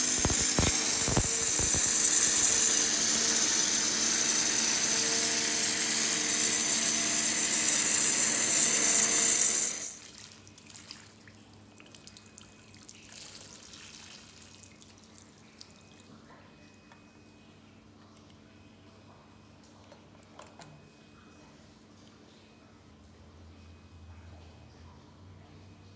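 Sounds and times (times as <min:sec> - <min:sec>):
water jet hissing on stone: 0:00.0 - 0:10.0
faint drips: 0:10.0 - 0:16.1.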